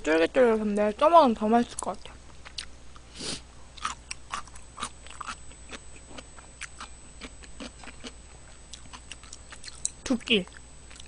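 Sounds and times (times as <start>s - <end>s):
person chewing soft food: 2.4s - 11.0s.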